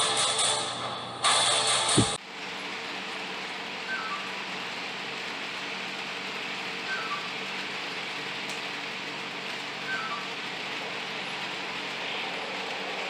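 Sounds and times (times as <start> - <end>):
model diesel locomotive idling: 0.0 - 13.0.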